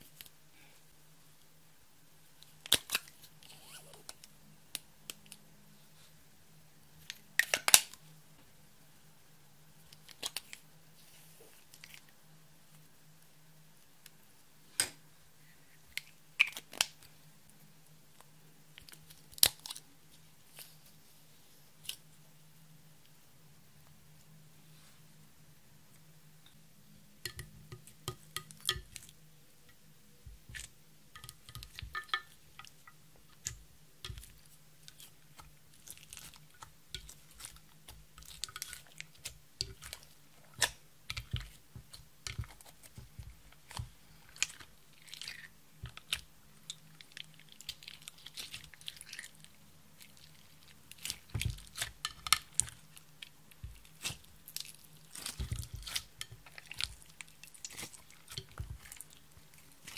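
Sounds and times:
slime squelching and popping: 50.0s - 59.9s.

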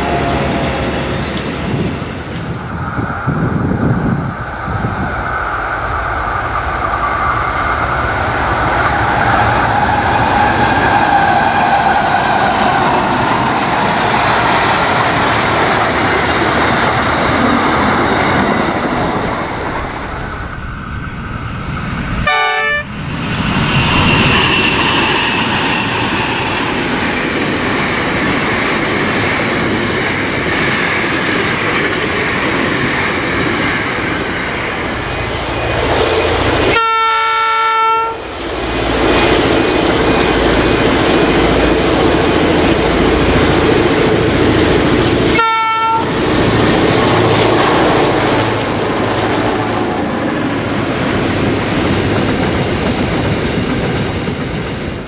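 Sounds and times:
locomotive horn: 0.0s - 1.3s, 22.2s - 23.0s, 36.7s - 38.3s, 45.3s - 46.2s
wagons rumbling over rails: 0.0s - 55.0s.

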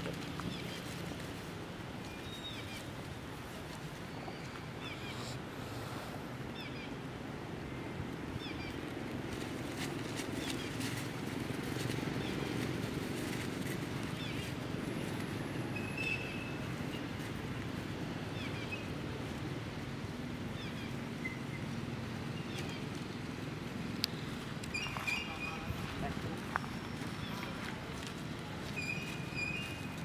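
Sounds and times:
low outdoor rumble: 0.0s - 30.0s
faint high chirps and squeaks: 24.6s - 25.8s, 28.6s - 30.0s.

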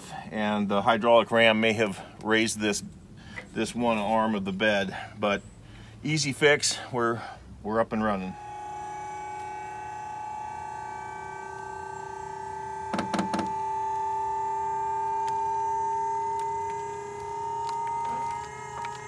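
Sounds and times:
hydraulic system whine: 8.0s - 19.0s.

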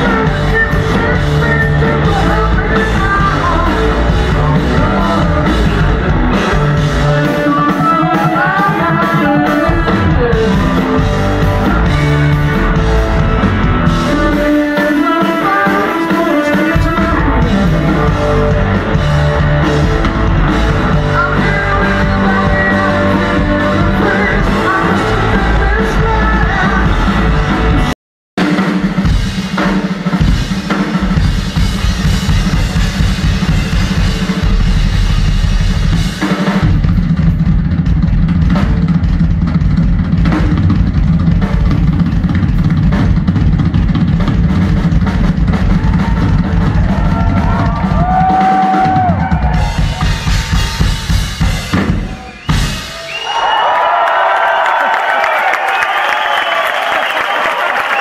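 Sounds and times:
person singing: 0.0s - 12.1s, 13.9s - 19.8s, 20.7s - 27.9s
drum solo on rock kit: 0.0s - 53.5s
rock band playing: 0.0s - 58.0s.

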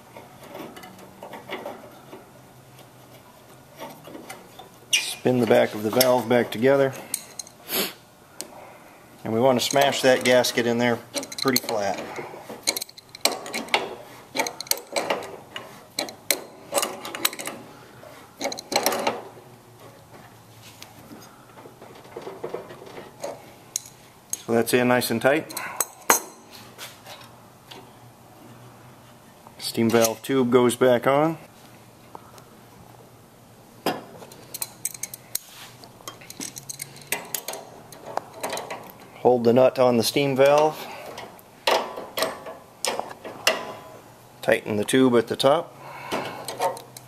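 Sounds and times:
wrench clinking on metal nut: 9.6s - 15.4s, 16.0s - 17.6s, 18.4s - 19.2s, 34.3s - 35.4s, 36.0s - 39.0s.

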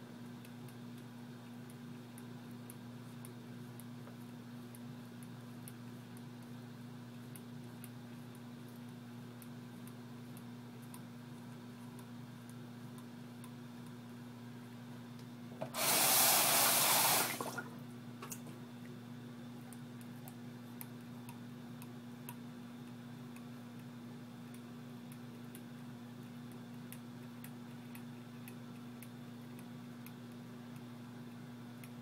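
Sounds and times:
tap water rushing into sink: 15.6s - 17.6s.

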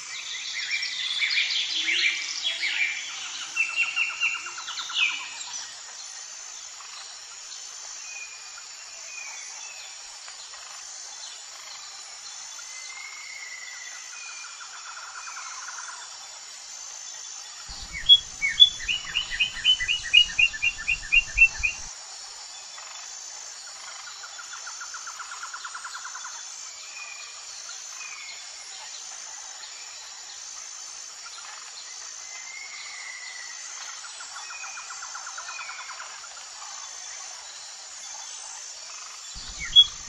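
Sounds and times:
high insect drone: 0.0s - 40.0s
birds chirping: 17.7s - 21.9s, 39.4s - 40.0s
buzzy bird trill: 17.7s - 21.9s, 39.4s - 40.0s.

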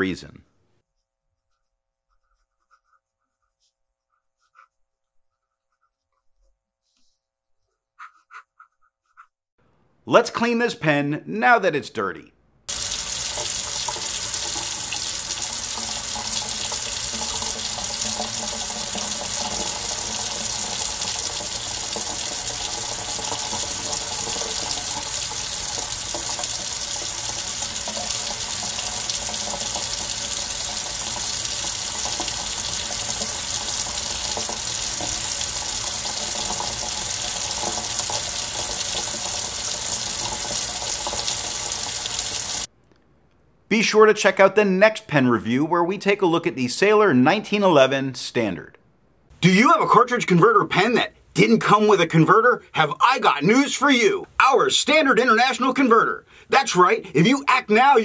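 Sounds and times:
faucet water splashing into sink: 12.7s - 42.7s.

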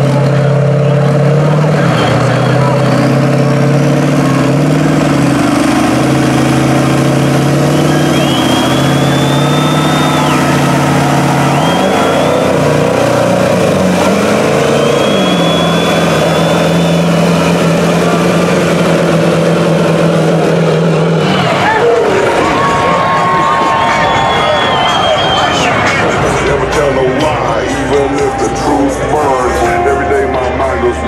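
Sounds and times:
diesel trucks at full throttle: 0.0s - 31.0s
high whistle: 7.7s - 10.6s, 11.4s - 12.6s, 14.6s - 17.2s, 23.6s - 25.8s.

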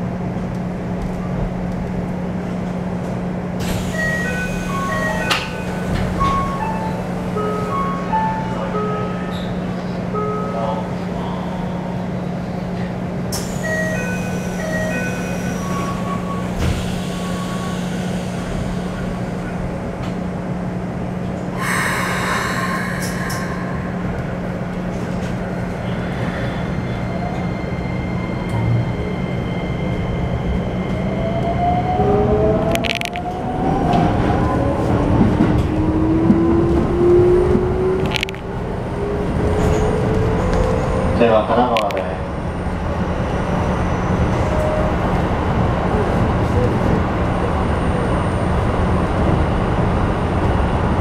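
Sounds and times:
electric train hum: 0.0s - 51.0s
train inverter whine rising: 13.4s - 51.0s.

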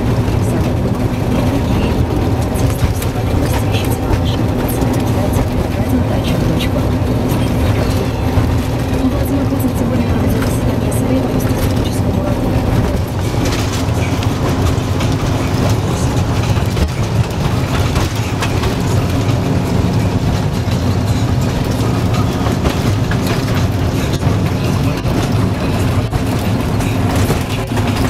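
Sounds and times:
locomotive diesel engine droning: 0.0s - 28.0s
wheels on rail: 0.0s - 28.0s.

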